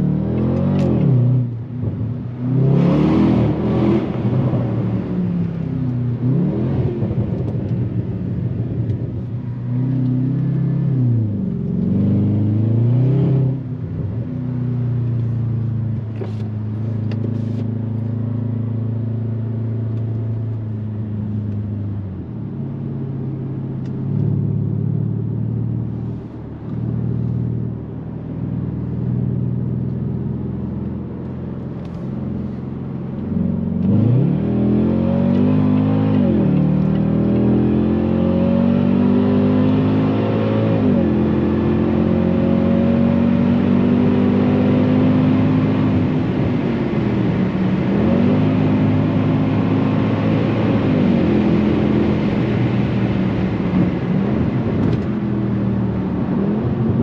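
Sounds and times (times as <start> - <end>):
car engine running: 13.6 - 34.3.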